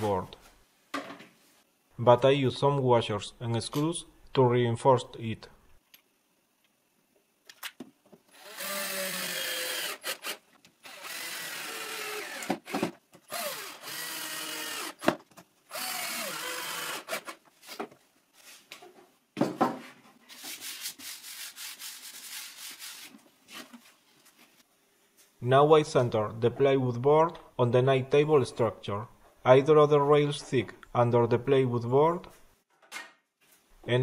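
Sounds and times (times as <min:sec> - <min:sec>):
drill-driver driving screws: 0:08.3 - 0:17.4.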